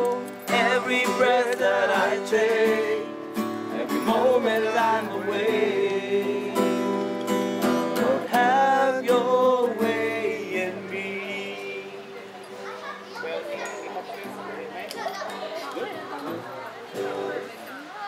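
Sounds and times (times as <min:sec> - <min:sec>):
person singing: 0:00.0 - 0:07.0, 0:08.0 - 0:12.2.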